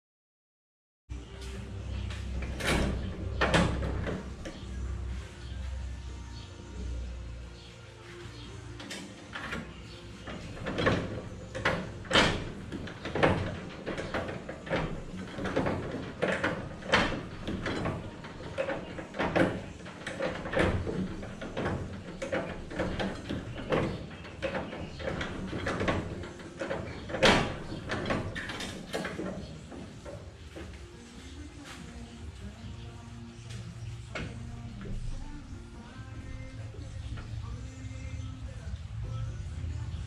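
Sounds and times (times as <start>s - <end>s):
metallic knocks and rattles: 2.0s - 4.9s, 8.8s - 31.3s.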